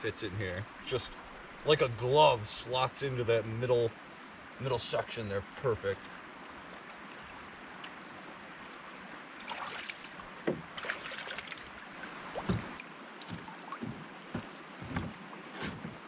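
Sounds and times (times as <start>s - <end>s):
running water rushing: 0.0s - 15.6s
water splashing: 9.3s - 14.8s
knocks on canoe hull: 10.4s - 10.7s, 12.4s - 15.2s.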